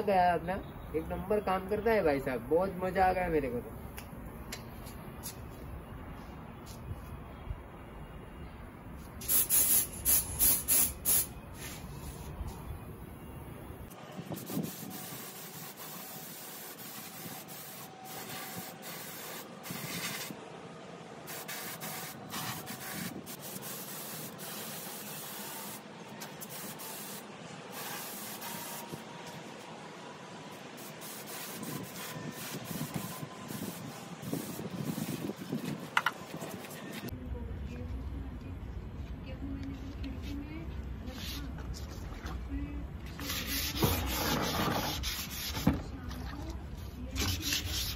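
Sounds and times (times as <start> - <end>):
spray gun hissing in bursts: 9.2 - 11.9, 14.3 - 20.3, 21.3 - 25.8, 26.4 - 29.0, 30.8 - 35.4.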